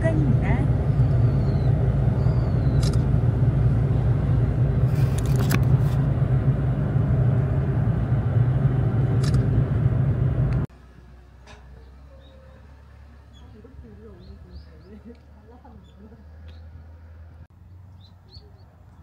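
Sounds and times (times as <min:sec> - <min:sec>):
car engine and tyre rumble: 0:00.0 - 0:19.0.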